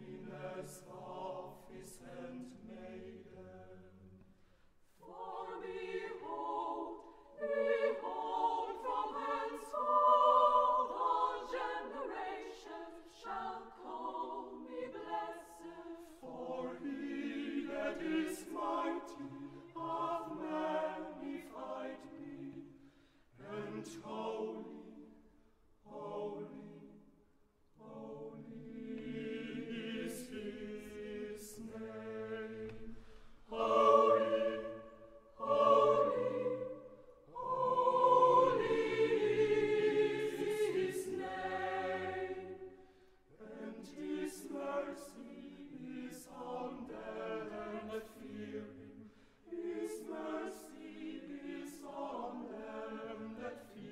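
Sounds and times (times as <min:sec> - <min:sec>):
choir singing: 0:00.0 - 0:04.3, 0:04.9 - 0:53.9.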